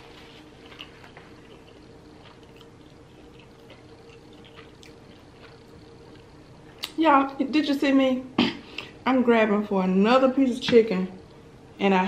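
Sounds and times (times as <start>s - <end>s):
faint steady hum: 0.0s - 12.0s
wet chewing mouth clicks: 0.6s - 7.0s.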